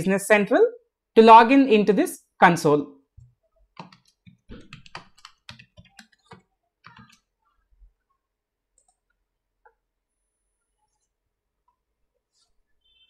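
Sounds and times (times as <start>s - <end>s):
computer keyboard keys clicking: 3.8s - 7.2s.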